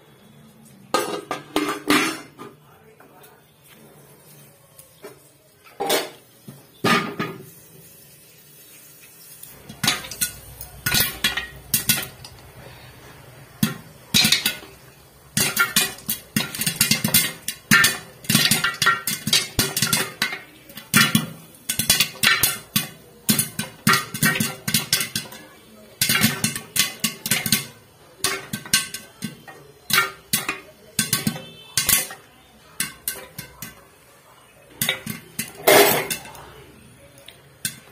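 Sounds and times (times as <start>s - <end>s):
popcorn popping in metal pot: 0.8s - 2.4s, 9.5s - 37.9s.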